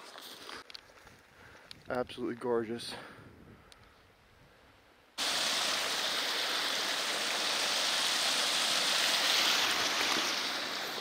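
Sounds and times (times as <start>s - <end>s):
creek flowing water: 5.2s - 11.0s.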